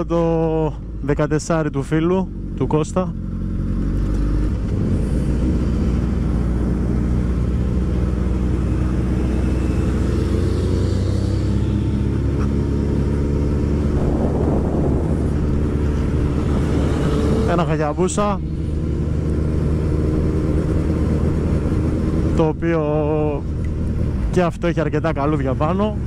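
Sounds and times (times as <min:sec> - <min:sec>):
motorcycle engines running: 0:00.0 - 0:26.0
wind rushing on microphone: 0:04.5 - 0:22.6.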